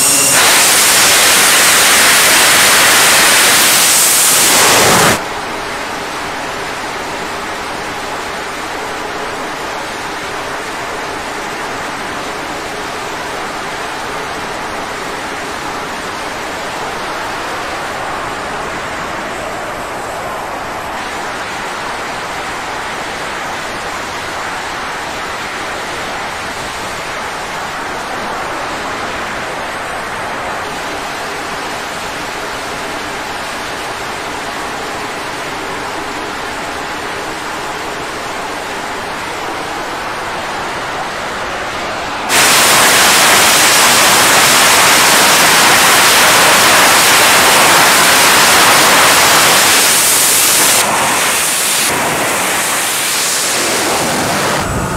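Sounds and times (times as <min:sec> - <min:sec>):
jet engines roaring: 0:00.0 - 0:05.2, 0:42.3 - 0:54.9.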